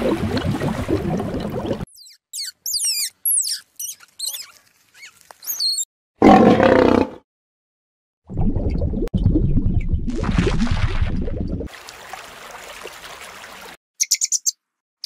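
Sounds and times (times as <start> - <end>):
high-pitched chirps: 1.9 - 5.9.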